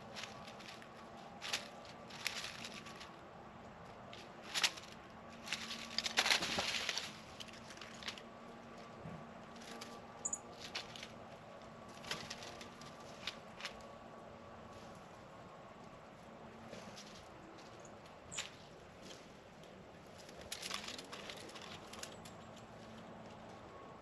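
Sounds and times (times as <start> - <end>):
small animals feeding rustles: 0.0 - 23.9.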